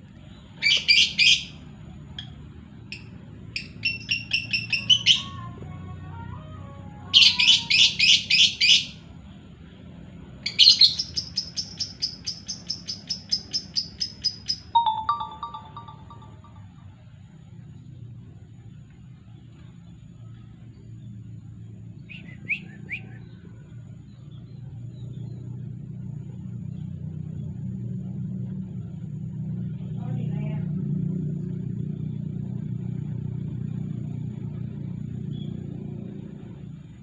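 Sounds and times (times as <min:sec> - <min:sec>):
shrill bird chirps: 0:00.3 - 0:01.6, 0:03.0 - 0:05.4, 0:07.2 - 0:09.0, 0:10.4 - 0:16.7, 0:22.0 - 0:23.4.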